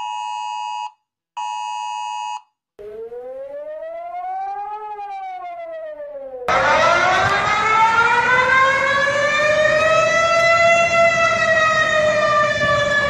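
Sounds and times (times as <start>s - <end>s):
warning siren wailing: 2.8s - 13.0s.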